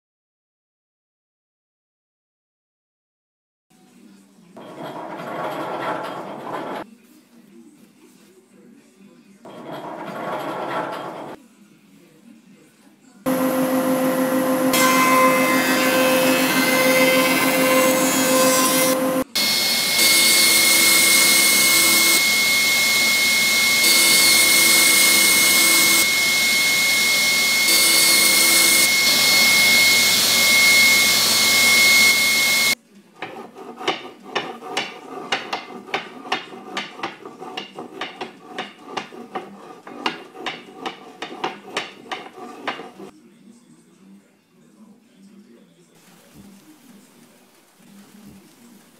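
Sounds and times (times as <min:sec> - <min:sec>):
table saw whining: 0:13.3 - 0:43.1
thickness planer running: 0:13.3 - 0:43.1.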